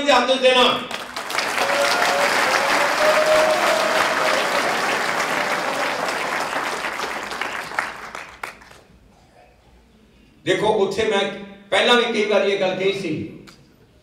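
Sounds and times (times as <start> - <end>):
audience applauding: 0.9 - 8.9.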